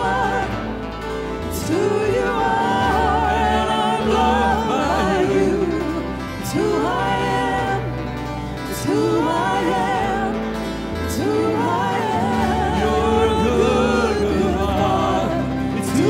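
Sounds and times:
acoustic guitar: 0:00.0 - 0:16.0
people singing: 0:00.0 - 0:16.0.

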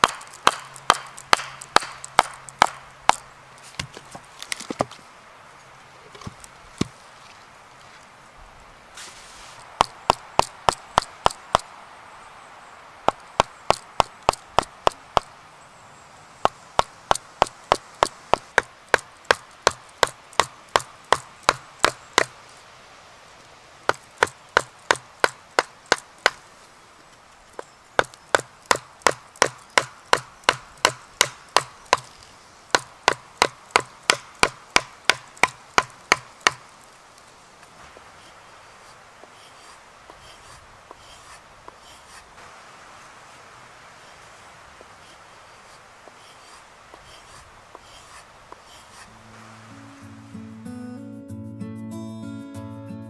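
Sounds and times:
mallet striking chisel: 0:00.0 - 0:03.2, 0:28.0 - 0:32.1, 0:32.8 - 0:36.6.

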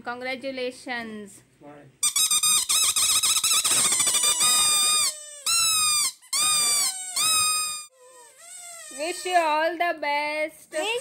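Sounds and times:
baby squealing: 0:03.3 - 0:09.5.

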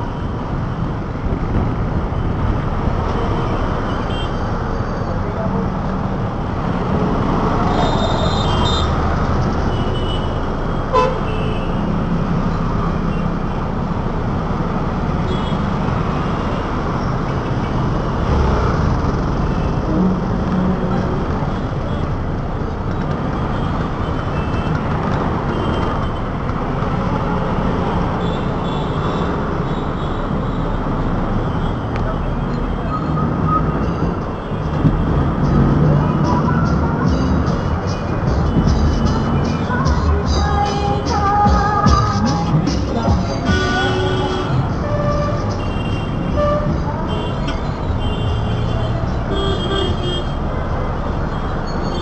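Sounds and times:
road traffic engines: 0:00.0 - 0:52.0
vehicle horns tooting: 0:07.7 - 0:09.0, 0:09.7 - 0:11.9, 0:43.3 - 0:50.4.

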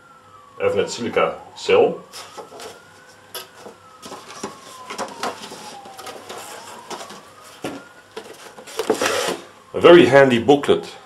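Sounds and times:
paper rustling: 0:02.1 - 0:09.5.

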